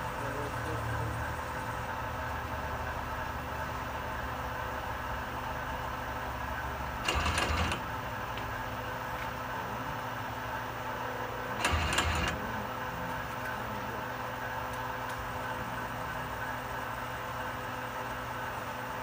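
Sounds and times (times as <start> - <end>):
lathe spindle humming and whining: 0.0 - 19.0
loud mechanical clatter: 7.0 - 8.6, 11.5 - 12.5.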